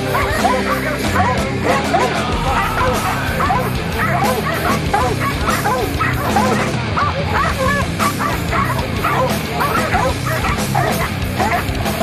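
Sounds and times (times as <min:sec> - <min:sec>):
dogs barking and bawling: 0:00.0 - 0:12.0
music track: 0:01.6 - 0:07.0.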